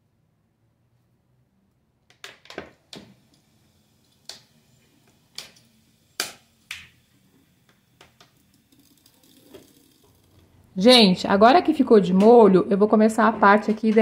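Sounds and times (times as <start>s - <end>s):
liquid pouring into machine: 7.2s - 10.6s.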